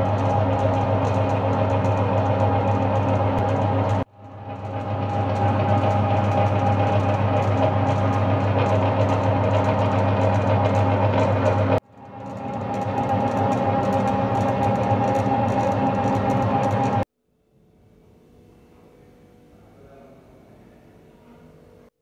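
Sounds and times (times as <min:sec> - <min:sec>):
dough mixer motor humming: 0:00.0 - 0:17.0.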